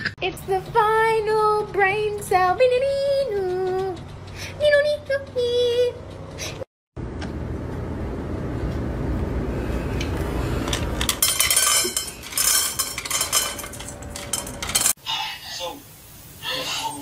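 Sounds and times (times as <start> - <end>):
kibble clinking in metal bowl: 10.7 - 15.0.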